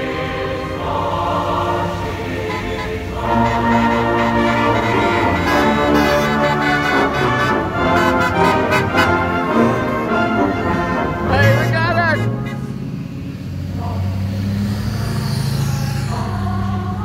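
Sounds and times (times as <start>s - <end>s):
orchestral music with brass: 0.0s - 12.9s.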